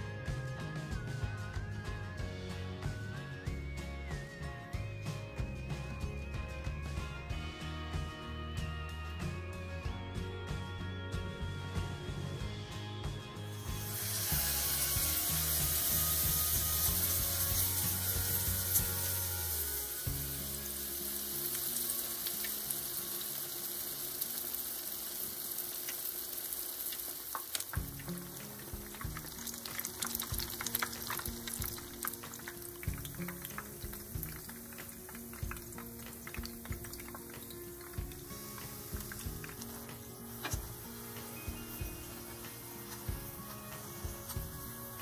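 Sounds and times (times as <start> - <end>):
oil sizzling and crackling: 12.3 - 45.0.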